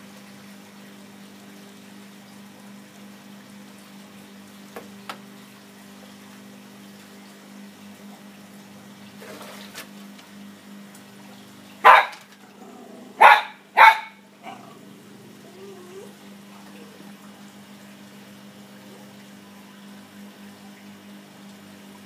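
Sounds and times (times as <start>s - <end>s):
low steady hum: 0.0s - 22.0s
dog barking: 11.8s - 12.2s, 13.2s - 14.7s.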